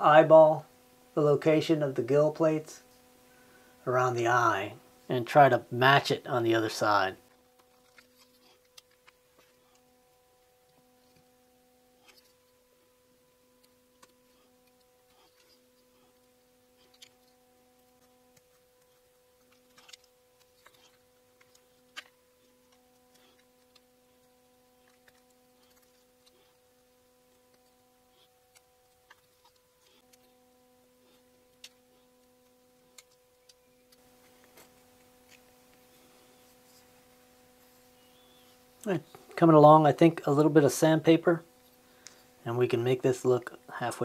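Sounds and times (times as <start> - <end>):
faint steady hum: 0.0 - 44.0
knife blade carving wood: 13.5 - 36.6.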